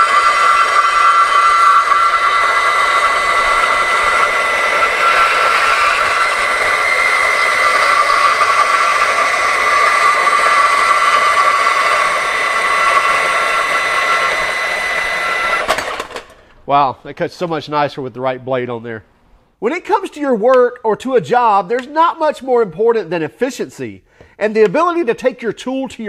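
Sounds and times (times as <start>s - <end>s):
saw teeth rasping steel: 0.0s - 15.7s
band saw whining: 0.0s - 17.6s.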